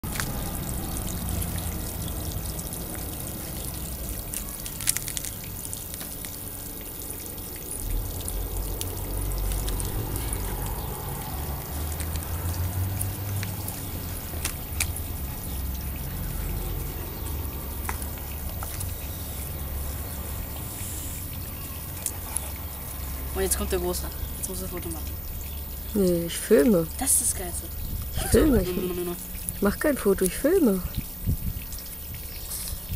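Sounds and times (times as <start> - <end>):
water trickling: 0.0 - 32.9
low rumble: 7.7 - 13.5.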